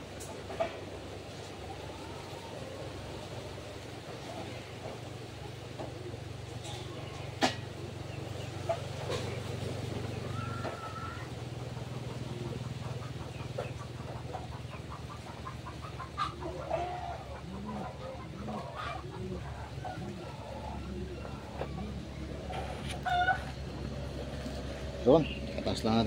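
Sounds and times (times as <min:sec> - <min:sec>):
steady low hum: 0:00.0 - 0:26.0
bird giving low calls: 0:00.8 - 0:26.0.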